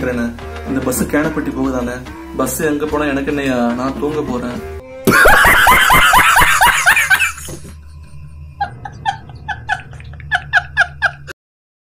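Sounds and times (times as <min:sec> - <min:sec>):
man laughing hard: 0:05.1 - 0:11.4.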